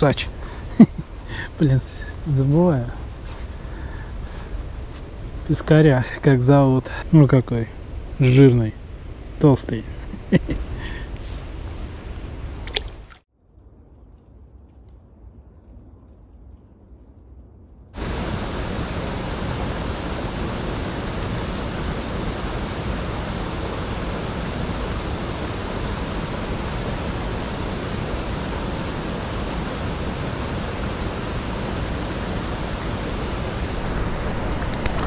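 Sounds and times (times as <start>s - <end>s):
stream water rushing: 18.0s - 35.0s.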